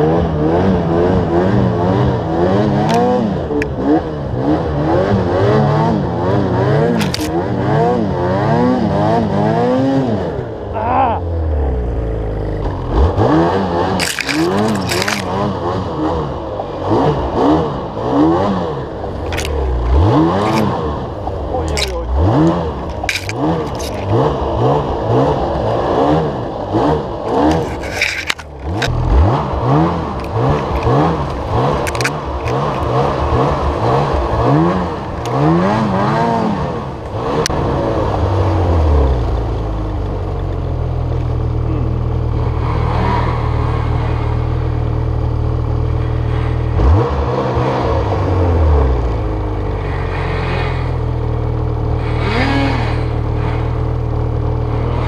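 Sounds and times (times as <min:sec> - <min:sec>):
snowmobile engine revving: 0:00.0 - 0:39.9, 0:41.2 - 0:55.0
branches scraping and snapping: 0:07.0 - 0:07.4, 0:14.0 - 0:15.4, 0:19.2 - 0:20.8, 0:21.6 - 0:24.2, 0:27.3 - 0:29.2, 0:30.2 - 0:33.0.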